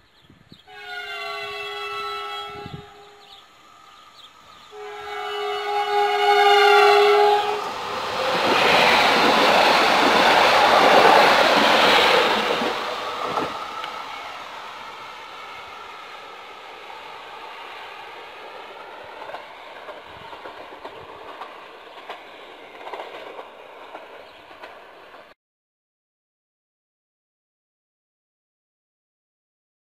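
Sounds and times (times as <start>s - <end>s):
train passing at speed: 0.4s - 25.4s
train horn blasts: 0.7s - 3.8s, 4.6s - 7.8s.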